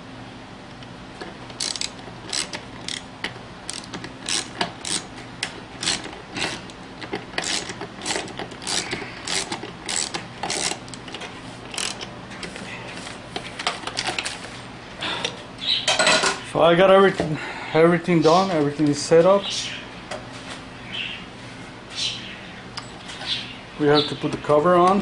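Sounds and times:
faint steady hum: 0:00.0 - 0:25.0
ratchet wrench clicking: 0:01.5 - 0:03.0, 0:03.7 - 0:05.1, 0:05.8 - 0:06.8, 0:07.4 - 0:12.1.

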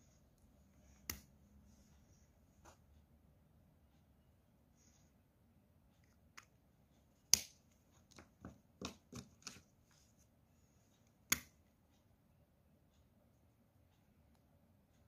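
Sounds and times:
markers tapping while handled: 0:07.3 - 0:09.7.

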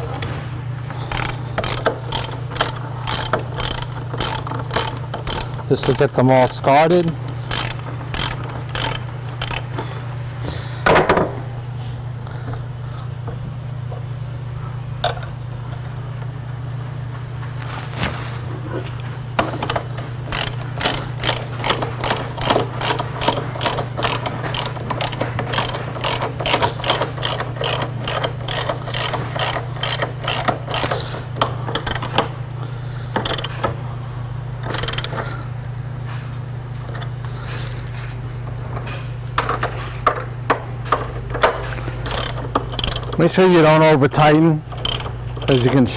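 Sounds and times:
ratchet wrench clicking: 0:01.1 - 0:09.8, 0:19.6 - 0:32.2, 0:33.1 - 0:33.7, 0:34.6 - 0:35.3, 0:42.0 - 0:43.2, 0:44.2 - 0:45.7.

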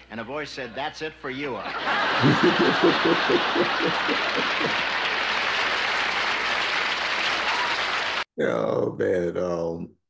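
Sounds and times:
audience applauding: 0:01.8 - 0:08.3
man chuckling: 0:02.2 - 0:04.9.

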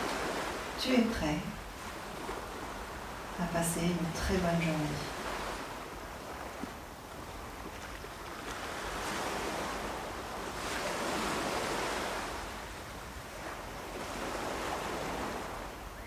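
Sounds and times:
ocean waves breaking: 0:00.0 - 0:16.0.

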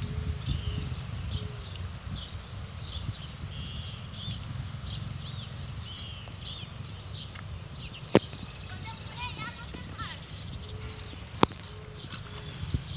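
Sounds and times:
small birds chirping: 0:00.0 - 0:12.9
steady low rumble: 0:00.0 - 0:12.9.

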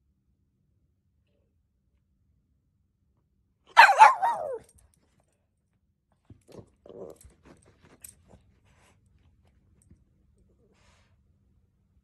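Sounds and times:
dog barking: 0:03.7 - 0:04.7
dog scuffling and clicking: 0:06.3 - 0:10.0.

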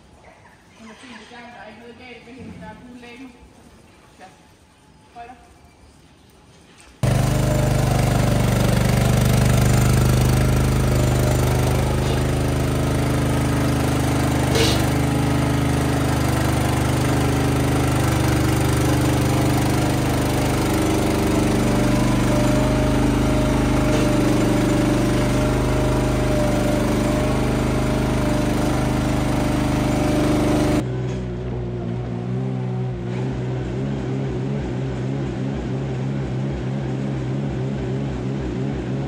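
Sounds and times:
motor humming: 0:07.0 - 0:30.8.

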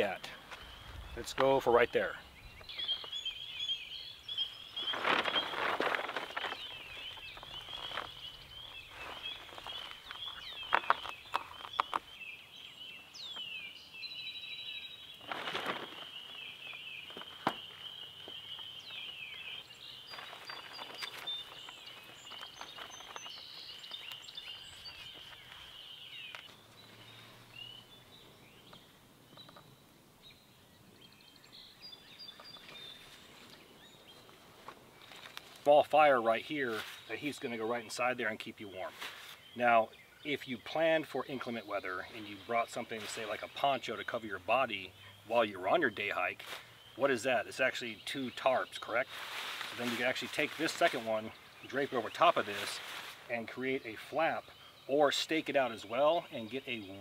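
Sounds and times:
small birds chirping: 0:00.0 - 0:57.0
tarp rustling and crinkling: 0:04.3 - 0:12.0, 0:15.0 - 0:27.7, 0:32.5 - 0:39.8, 0:40.6 - 0:54.4.

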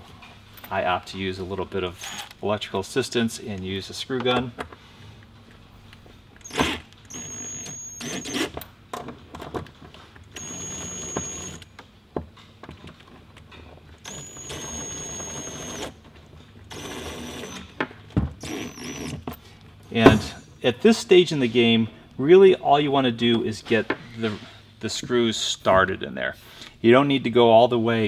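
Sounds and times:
screw gun motor whine: 0:02.0 - 0:02.4, 0:06.4 - 0:08.6, 0:10.3 - 0:11.7, 0:14.0 - 0:16.0, 0:16.7 - 0:17.7, 0:18.4 - 0:19.3.

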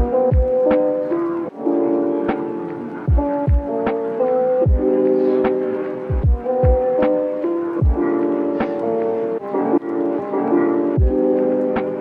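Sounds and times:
kick drum thumps: 0:00.0 - 0:00.5, 0:03.1 - 0:03.7, 0:04.7 - 0:04.9, 0:06.1 - 0:06.8
keyboard chords: 0:00.0 - 0:12.0.

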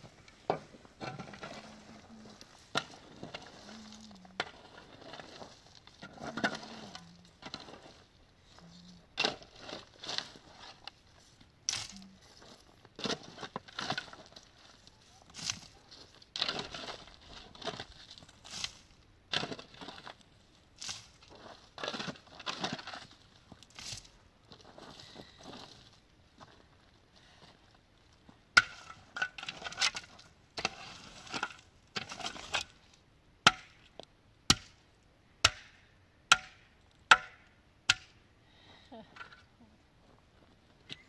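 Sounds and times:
crunching and scraping strokes: 0:00.0 - 0:26.6, 0:28.7 - 0:33.0.

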